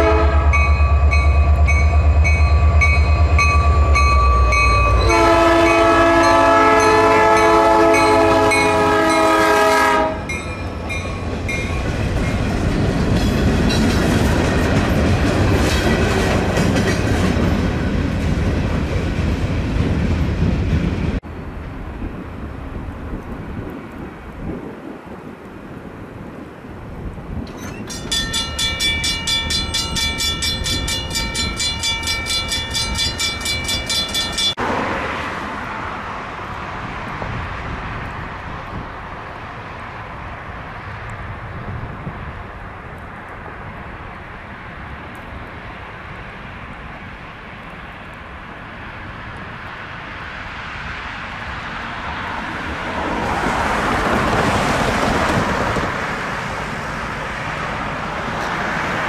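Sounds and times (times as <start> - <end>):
crossing warning bell ringing: 0.0 - 12.5, 27.5 - 34.6
train cars rumbling: 0.0 - 59.0.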